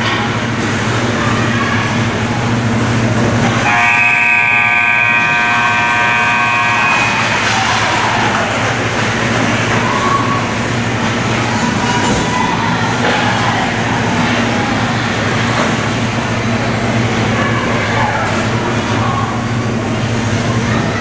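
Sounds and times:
ice rink noise: 0.0 - 21.0
scoreboard horn blast: 3.6 - 7.5.

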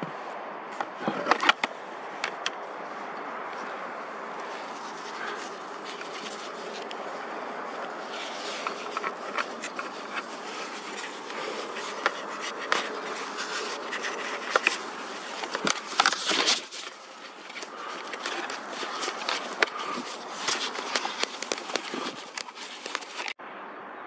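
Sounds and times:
rubbing against microphone: 2.6 - 23.4
scattered clicks: 8.3 - 23.4.

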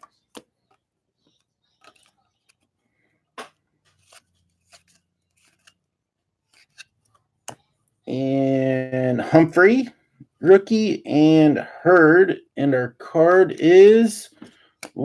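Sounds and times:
trading cards swishing and clicking: 3.4 - 5.8, 6.5 - 7.2.

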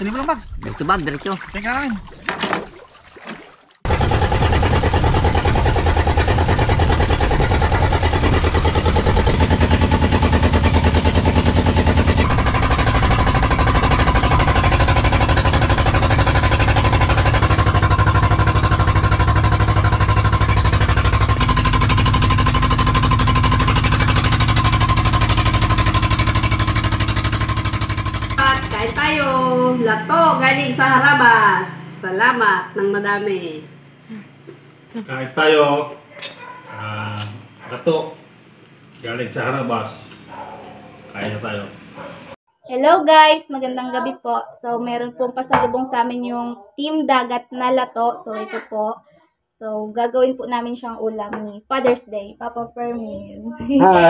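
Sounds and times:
boat engine droning: 0.0 - 42.4, 53.7 - 54.0.

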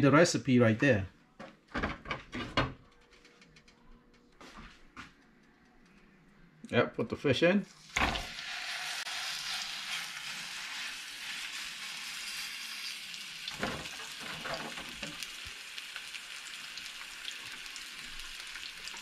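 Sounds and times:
fish sizzling in hot oil: 7.8 - 19.0.

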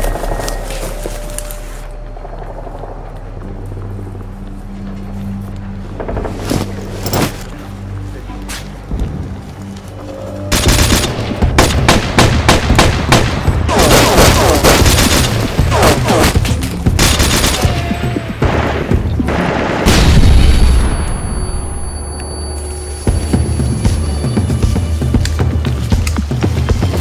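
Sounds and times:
rapid gunfire bursts: 10.6 - 16.4, 17.0 - 17.7.

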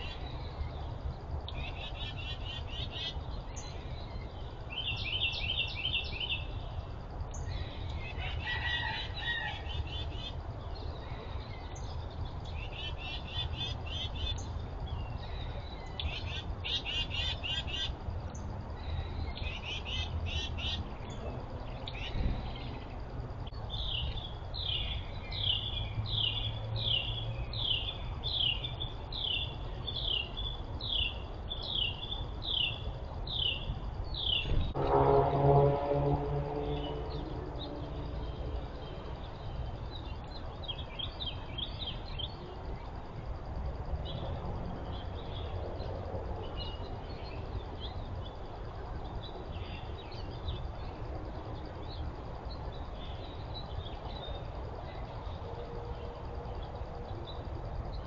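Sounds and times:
songbirds trilling: 0.0 - 35.0, 36.3 - 43.4.

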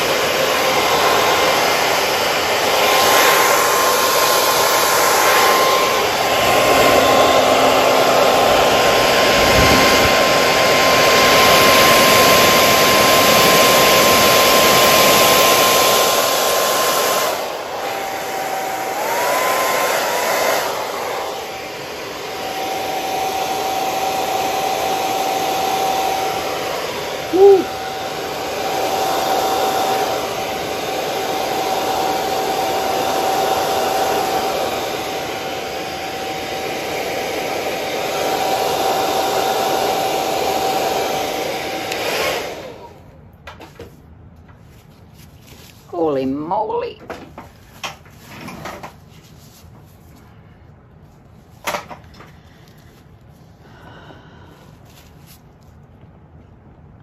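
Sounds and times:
hair dryer blowing: 0.0 - 43.2, 45.7 - 49.6, 51.6 - 55.4.

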